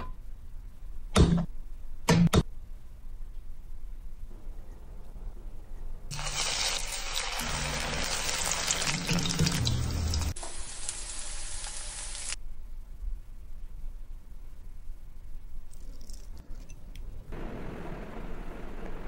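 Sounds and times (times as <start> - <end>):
food sizzling in hot oil: 6.1 - 12.4.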